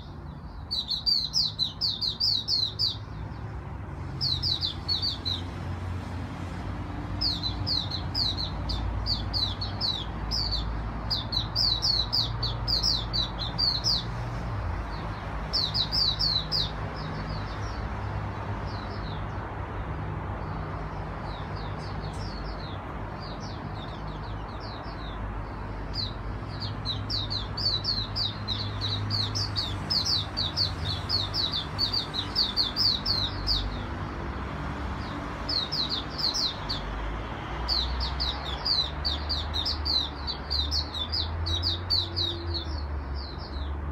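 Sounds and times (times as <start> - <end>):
songbird chirping: 0.0 - 5.7, 6.4 - 34.1.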